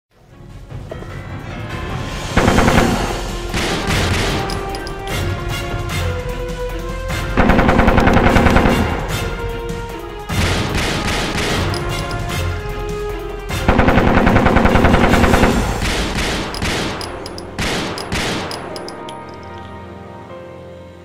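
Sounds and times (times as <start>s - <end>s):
background music: 0.1s - 21.0s
automatic gunfire bursts: 2.4s - 5.1s, 7.4s - 9.2s, 10.3s - 12.3s, 13.7s - 18.8s.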